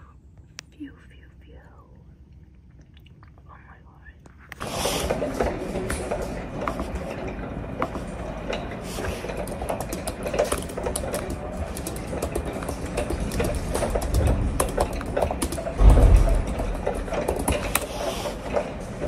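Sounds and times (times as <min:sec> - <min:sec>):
laptop keyboard typing: 0:09.1 - 0:15.8
low rumble: 0:15.6 - 0:17.6.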